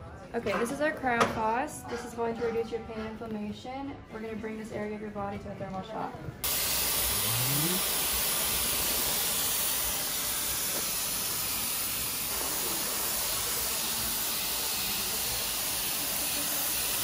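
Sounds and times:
hissing jet of cold gas: 0:06.4 - 0:17.0.

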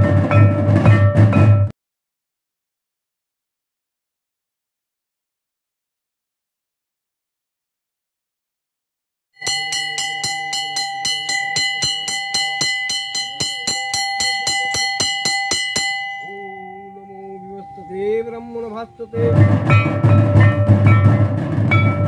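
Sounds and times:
bell rung rapidly: 0:09.4 - 0:22.0.

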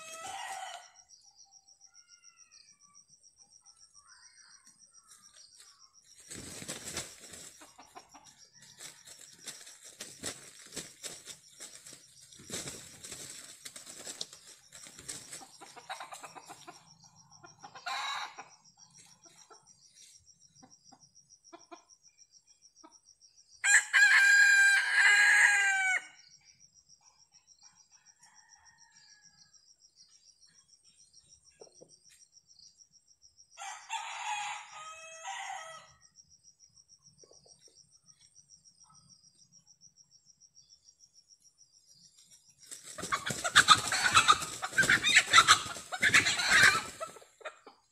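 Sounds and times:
rooster crowing: 0:00.0 - 0:01.1, 0:23.6 - 0:26.2, 0:33.6 - 0:36.0
wing flapping and scuffling: 0:05.6 - 0:08.0, 0:08.6 - 0:16.6, 0:42.6 - 0:47.3.

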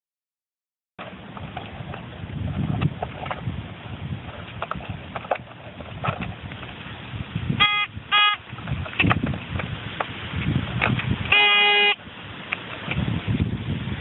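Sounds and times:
metal detector beeps: 0:07.6 - 0:08.4, 0:11.3 - 0:12.0.

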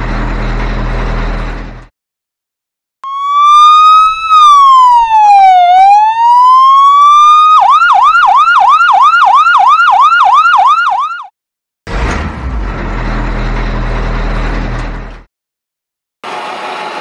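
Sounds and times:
electronic siren wailing and yelping: 0:03.0 - 0:11.3.

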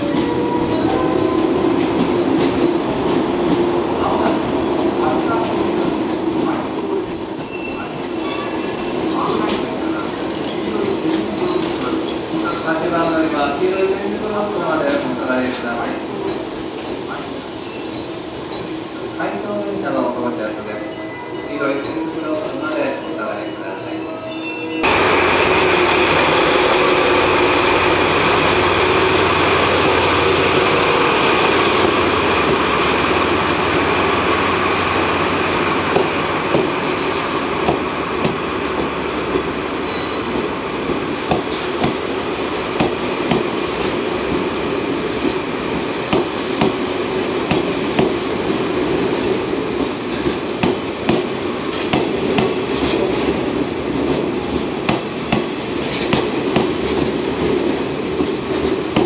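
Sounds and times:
diesel locomotive engine: 0:24.4 - 0:59.0
train wheels clacking on rail joints: 0:35.9 - 0:42.2, 0:46.0 - 0:46.8, 0:49.8 - 0:59.0.

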